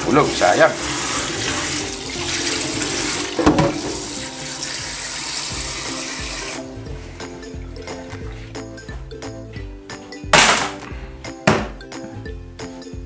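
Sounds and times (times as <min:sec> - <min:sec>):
tap water running into pot: 0:00.0 - 0:06.6
background music: 0:00.0 - 0:13.0
knock in sink: 0:03.3 - 0:04.1, 0:11.4 - 0:11.8.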